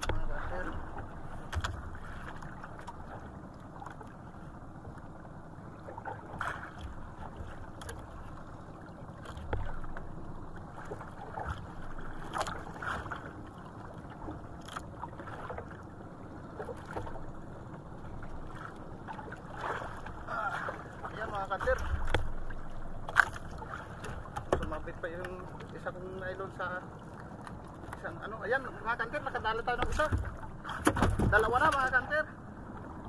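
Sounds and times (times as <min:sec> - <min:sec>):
water lapping against boat hull: 0:00.0 - 0:33.0
splashes: 0:05.8 - 0:15.9, 0:18.2 - 0:25.9, 0:29.1 - 0:32.2.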